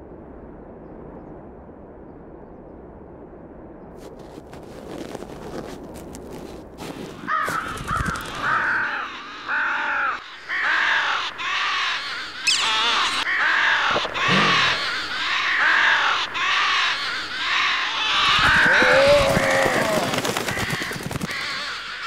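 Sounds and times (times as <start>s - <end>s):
crows cawing: 6.4s - 22.0s
wavering higher cry: 8.7s - 20.0s.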